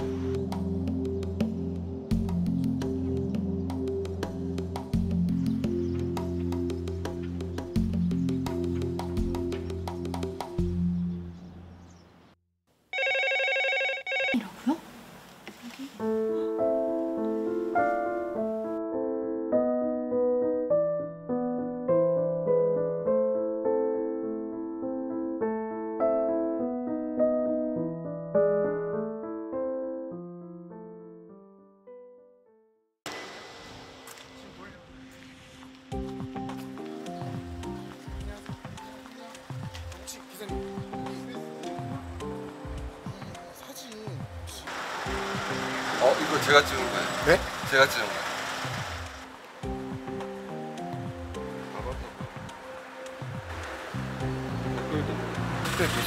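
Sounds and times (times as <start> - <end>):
electric piano background music: 0.0 - 11.5, 16.0 - 32.8, 34.1 - 56.0
theme music: 44.6 - 56.0
low sliding bass line: 54.0 - 56.0.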